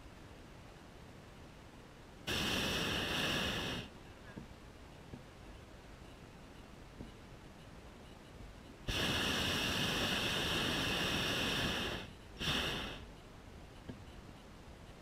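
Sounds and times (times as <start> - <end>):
propane burner blasts: 2.2 - 4.0, 8.8 - 13.1.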